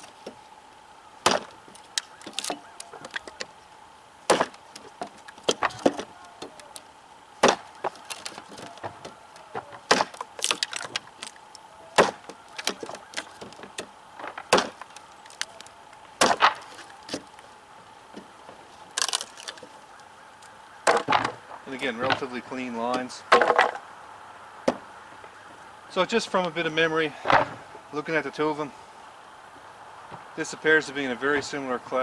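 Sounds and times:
wood chips splintering: 0.0 - 23.8
knife chopping wood: 1.2 - 3.5, 4.3 - 6.8, 7.4 - 11.4, 12.0 - 15.6, 16.2 - 17.3.

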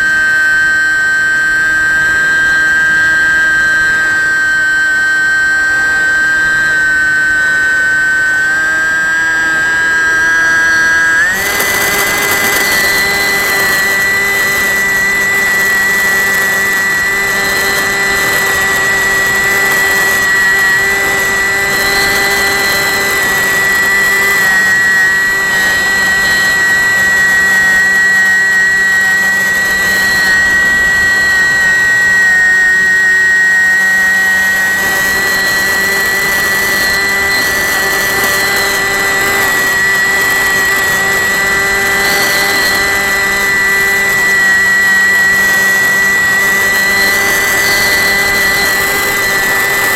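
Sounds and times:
model plane motor whine: 0.0 - 49.9.

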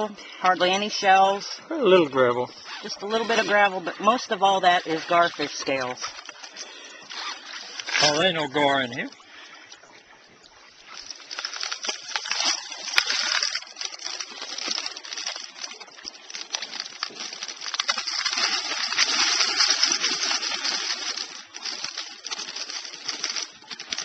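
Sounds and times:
water sloshing in a bucket: 2.5 - 24.0
small stones rattling: 10.9 - 24.0.

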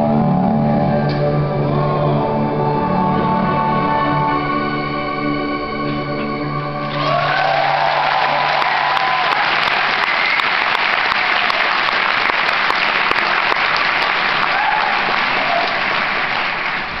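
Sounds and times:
audience applauding: 6.8 - 17.0.

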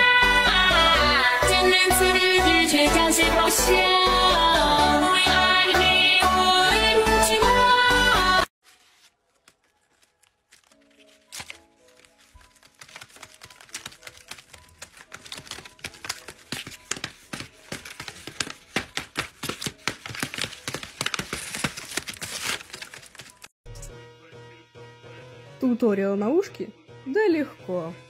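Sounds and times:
paper crinkling and tapping: 8.6 - 23.6.

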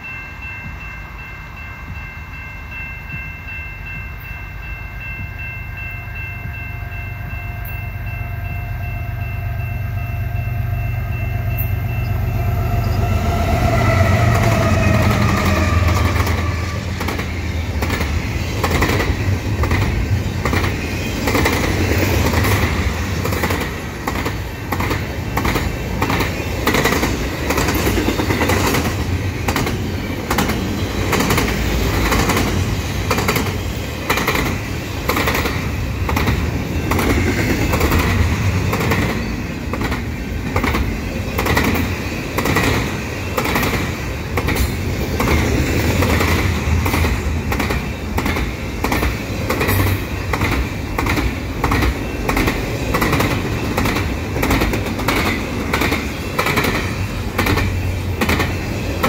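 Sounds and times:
train horn: 6.0 - 17.1
train wheels clicking and rattling: 11.1 - 59.0.

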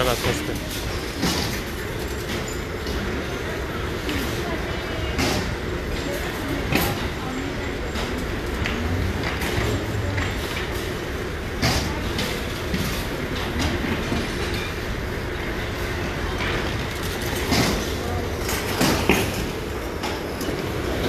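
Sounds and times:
metal shopping carts rattling: 0.0 - 21.0.

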